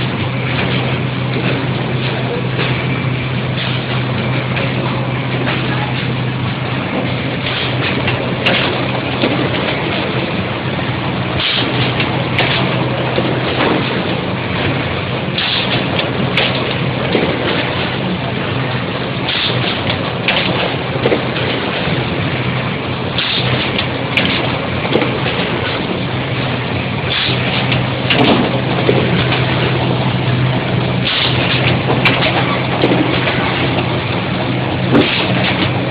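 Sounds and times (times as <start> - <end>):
machine mechanical din: 0.0 - 35.9
sharp hisses and clacks: 11.4 - 12.8, 19.3 - 20.7, 23.2 - 24.4, 27.0 - 29.0.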